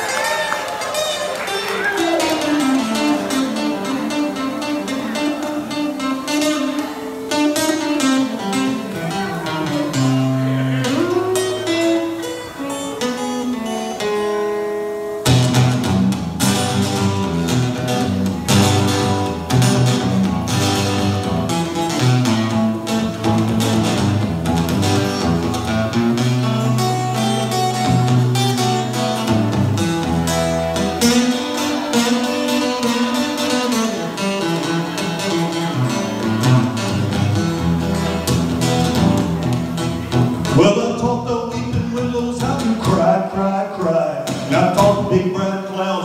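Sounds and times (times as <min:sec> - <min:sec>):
acoustic guitar blues: 0:00.0 - 0:46.0.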